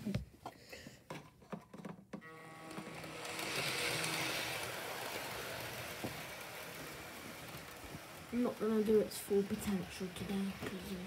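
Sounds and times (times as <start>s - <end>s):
model train motor whirring: 2.2s - 11.0s.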